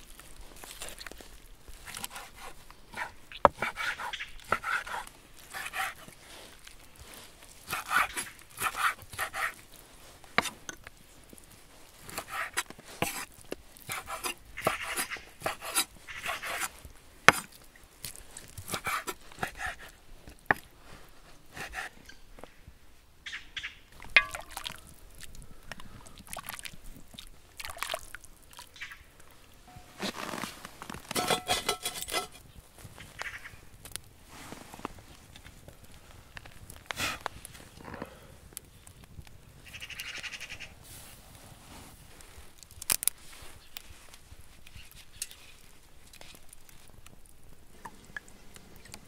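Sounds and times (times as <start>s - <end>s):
knife slicing meat: 1.9s - 6.1s, 7.7s - 9.6s
ladle clanking on metal pot: 31.1s - 32.4s.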